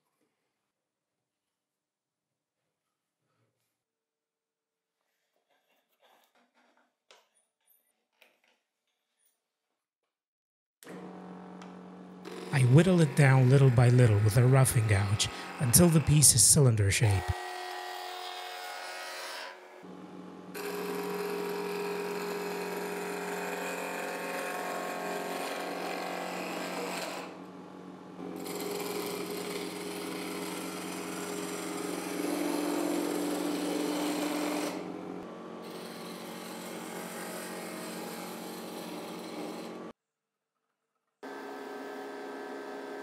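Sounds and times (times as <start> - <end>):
lathe motor humming: 10.9 - 19.2, 20.5 - 27.5, 28.2 - 39.9
gouge scraping spinning wood: 12.3 - 18.1, 20.6 - 27.3, 28.4 - 34.9, 35.6 - 39.9.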